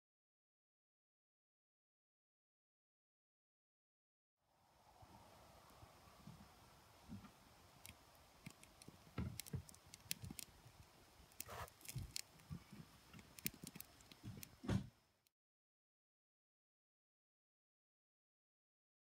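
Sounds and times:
fire crackling and popping: 7.0s - 14.7s.

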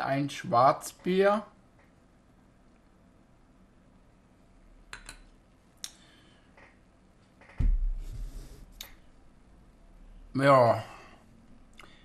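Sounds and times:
loud thump: 7.6s - 8.3s.

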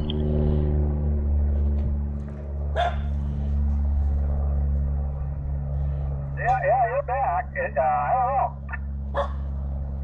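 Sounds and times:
steady low hum: 0.0s - 10.0s
dog barking: 2.7s - 3.1s, 9.1s - 9.5s.

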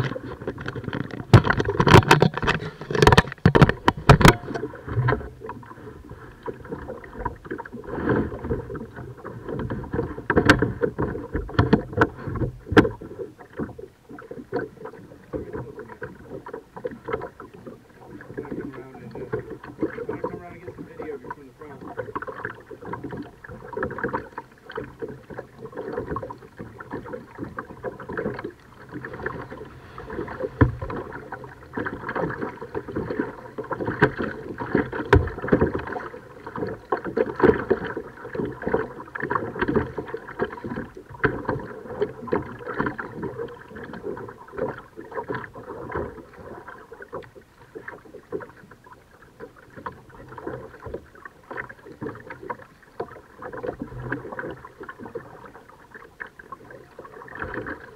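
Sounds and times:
small knocks and clicks: 0.0s - 5.6s
paddle strokes splashing: 0.0s - 57.9s.

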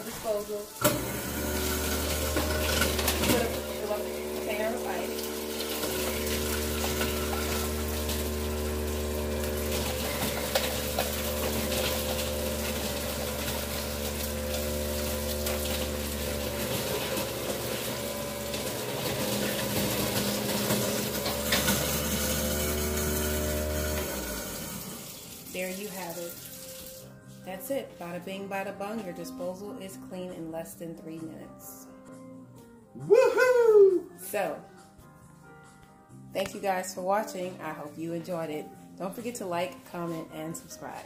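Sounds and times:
tap water running into sink: 0.0s - 27.1s
garbage disposal motor hum: 0.8s - 25.7s
ice clicking in disposal: 0.8s - 26.9s.

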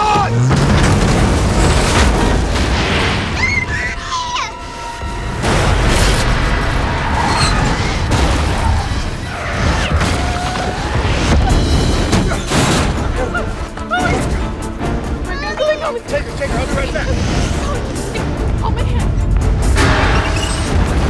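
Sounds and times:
deep rumbling: 0.0s - 15.2s
dramatic music score: 0.0s - 21.0s
heavy explosive booms: 0.3s - 3.5s.

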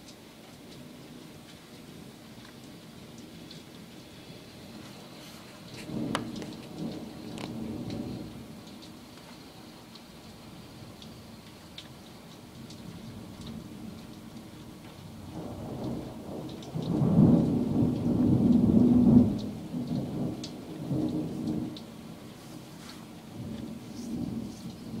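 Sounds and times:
rain falling: 0.0s - 25.0s
raindrop clicks: 0.0s - 25.0s
thunder rumbling: 2.9s - 9.2s, 12.4s - 25.0s.

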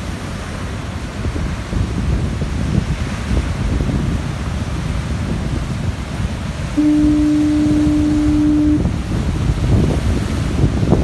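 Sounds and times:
surf breaking on rocks: 0.0s - 11.0s
wind on microphone: 0.0s - 11.0s
foghorn blast: 6.7s - 9.4s.

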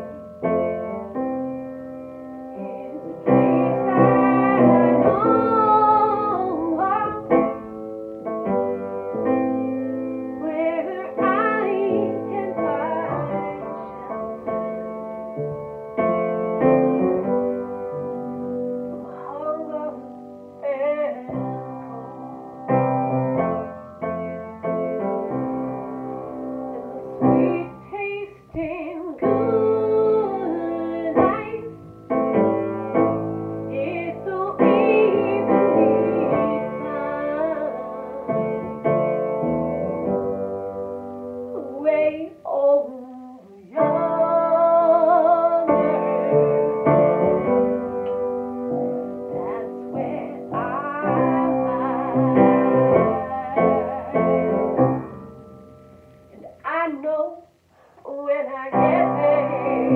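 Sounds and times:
piano: 0.0s - 59.9s
woman singing: 2.5s - 7.6s, 10.4s - 14.7s, 18.9s - 23.0s, 26.6s - 31.8s, 33.7s - 38.8s, 41.5s - 47.8s, 48.7s - 55.2s, 56.4s - 59.9s.

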